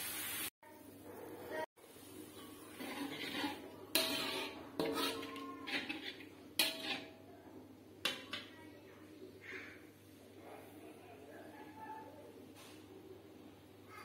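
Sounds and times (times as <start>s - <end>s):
oil frying: 0.0s - 0.5s, 1.8s - 7.3s
metal spatula clanking on wok: 2.4s - 7.2s, 8.0s - 8.5s.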